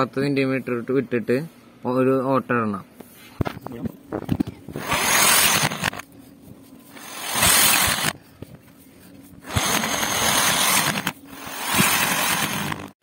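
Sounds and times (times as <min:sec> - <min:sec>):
power drill cutting plastic pipe: 0:04.7 - 0:06.0, 0:06.9 - 0:08.2, 0:09.4 - 0:13.0.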